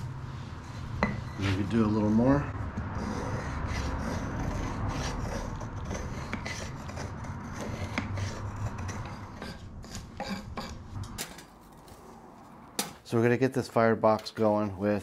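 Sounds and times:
knife scraping wood: 0.5s - 10.8s.

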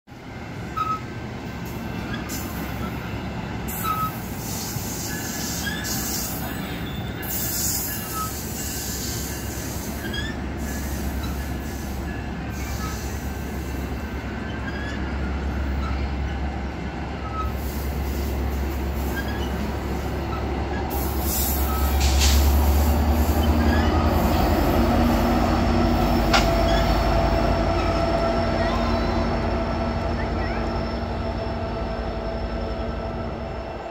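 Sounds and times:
train wheels rumbling on rail: 0.1s - 33.9s
high-pitched wheel squeal: 0.8s - 1.0s, 3.7s - 11.6s, 14.4s - 16.4s, 19.0s - 25.2s, 26.3s - 31.4s.

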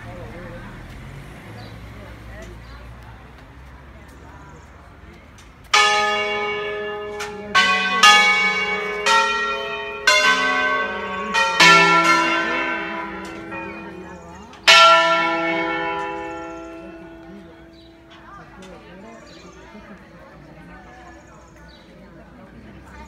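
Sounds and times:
church bells ringing: 5.7s - 20.0s.

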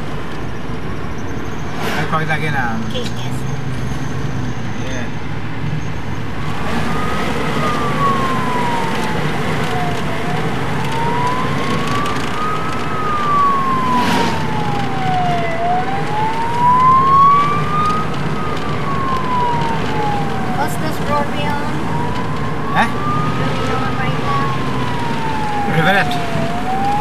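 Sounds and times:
car engine: 0.0s - 27.0s
road noise: 0.0s - 27.0s
fire truck siren wailing: 5.9s - 27.0s.

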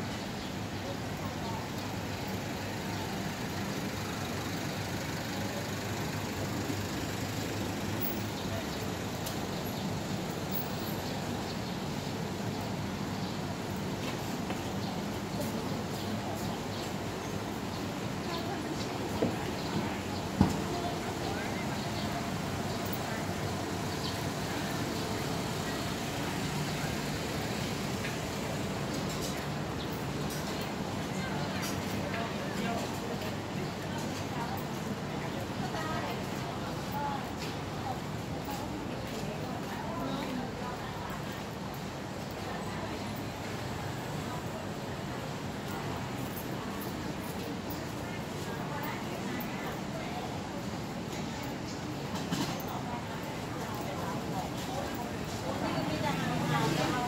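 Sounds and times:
low hum of traffic: 0.0s - 57.0s.

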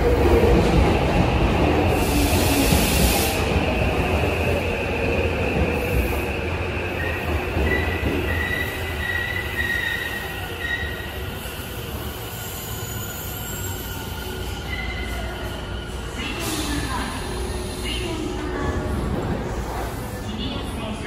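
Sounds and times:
high brake squeal: 7.0s - 15.7s.

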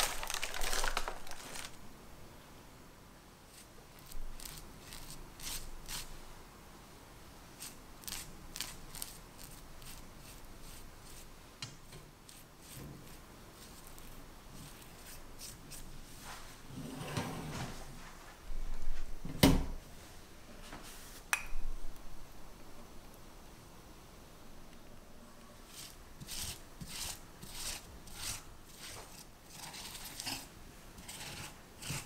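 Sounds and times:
pastry brush dabbing: 3.5s - 6.2s, 7.6s - 11.4s, 12.2s - 16.4s, 25.6s - 32.0s.

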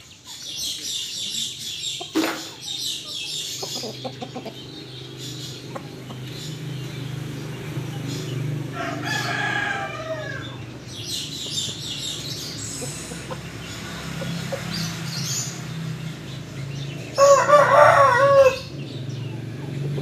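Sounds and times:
chicken chirps and clucks: 0.0s - 20.0s
rooster crowing: 8.7s - 10.6s, 17.2s - 18.7s.

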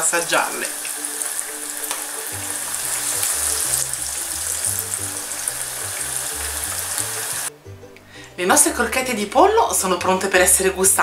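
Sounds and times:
food deep-frying in oil: 0.0s - 7.5s.

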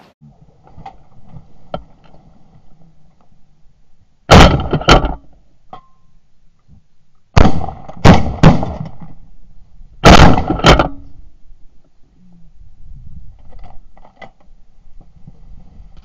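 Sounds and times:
shotgun shots: 4.3s - 5.2s, 7.4s - 9.1s, 10.0s - 11.0s.

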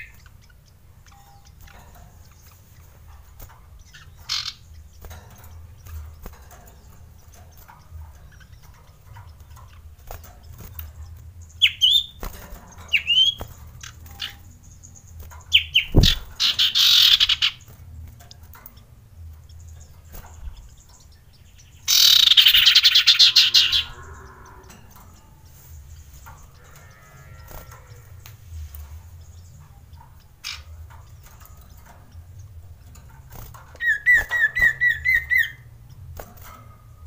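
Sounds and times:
bird calling: 21.8s - 24.7s.

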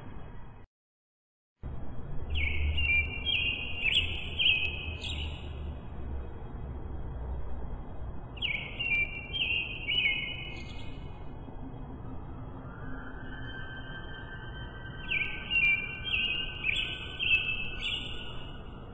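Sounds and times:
songbird singing: 2.2s - 5.7s, 8.3s - 11.5s, 12.6s - 18.9s.

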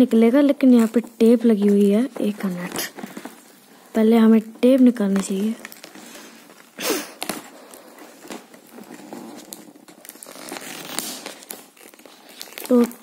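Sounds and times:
tape ripping rasp: 5.5s - 13.0s
tape peeling off cardboard: 5.6s - 13.0s.

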